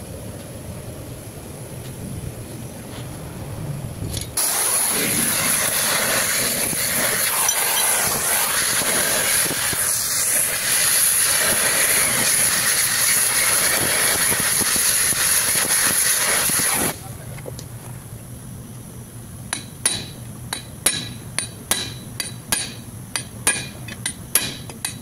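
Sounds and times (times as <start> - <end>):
gas torch hissing: 4.1 - 17.1.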